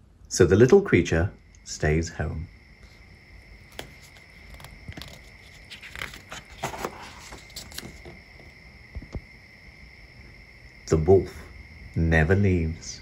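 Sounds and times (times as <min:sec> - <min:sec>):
book page turning: 0:03.6 - 0:09.2.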